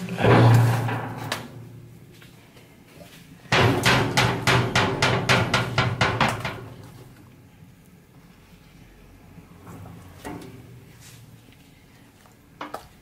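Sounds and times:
rapid sharp knocks: 0:03.5 - 0:06.7.

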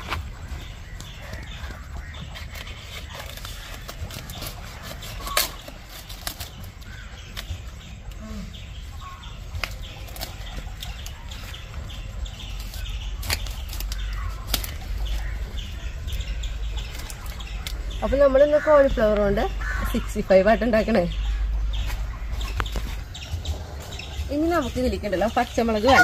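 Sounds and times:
leaves rustling: 0:00.0 - 0:26.0
stems snapping: 0:00.9 - 0:08.2, 0:09.5 - 0:11.5, 0:12.5 - 0:15.4, 0:16.8 - 0:17.8.

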